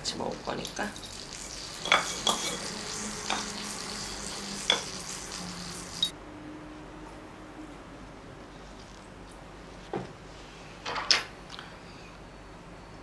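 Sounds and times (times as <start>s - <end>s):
crackling hiss: 0.2s - 6.1s.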